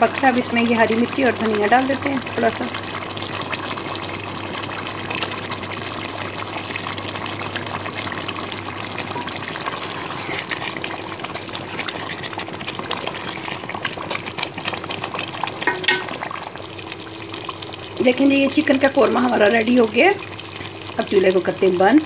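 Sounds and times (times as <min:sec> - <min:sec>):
curry bubbling in a pot: 0:00.0 - 0:22.0.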